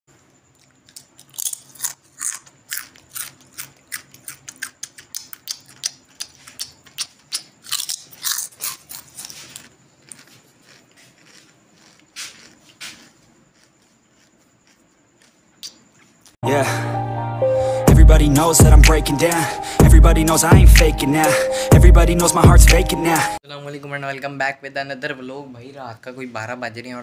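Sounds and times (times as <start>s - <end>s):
crunching and chewing crisp snack: 0.2s - 16.4s.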